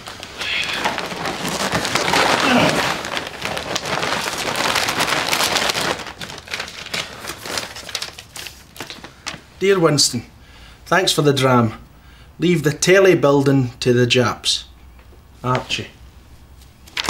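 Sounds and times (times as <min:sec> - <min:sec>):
paper tearing and crumpling: 0:00.0 - 0:09.4.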